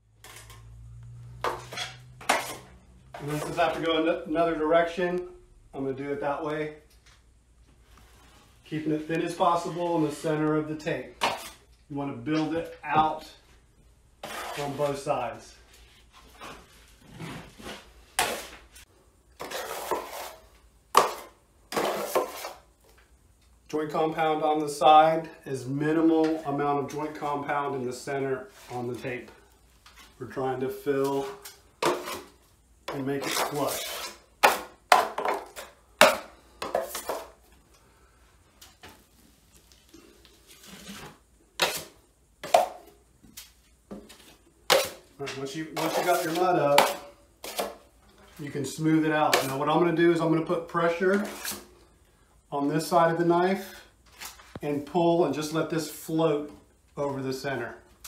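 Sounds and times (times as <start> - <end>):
knife scraping mud pan: 1.5 - 3.8, 11.2 - 11.7, 14.2 - 15.1, 19.4 - 22.6, 31.0 - 34.7, 40.6 - 42.7, 45.6 - 47.8, 51.1 - 51.7.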